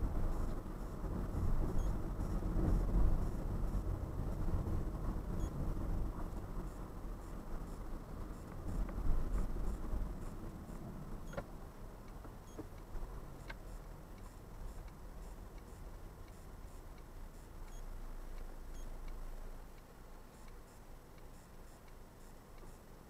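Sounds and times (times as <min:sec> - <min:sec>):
car engine and road rumble: 0:00.0 - 0:23.0
turn indicator ticking: 0:00.1 - 0:23.0.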